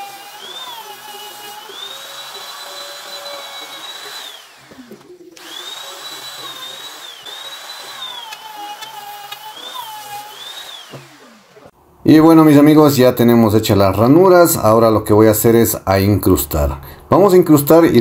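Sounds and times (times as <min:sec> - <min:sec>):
electric router whining: 0:00.0 - 0:11.8.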